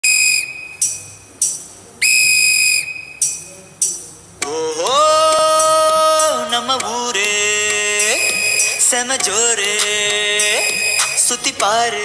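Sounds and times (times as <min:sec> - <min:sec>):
shrill whistle blasts: 0:00.0 - 0:01.0, 0:02.0 - 0:03.4, 0:08.1 - 0:09.0, 0:10.5 - 0:11.3.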